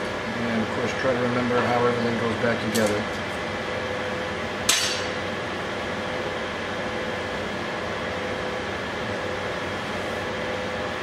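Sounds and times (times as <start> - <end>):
fan hum and hiss: 0.0 - 11.0.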